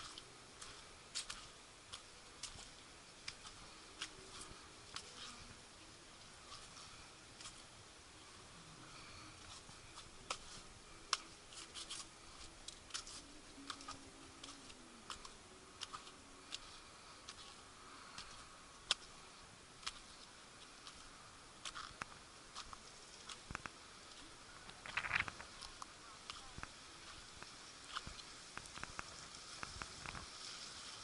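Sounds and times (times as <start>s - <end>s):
faint steady hiss: 0.0s - 31.0s
footsteps on rough rock: 20.8s - 29.0s.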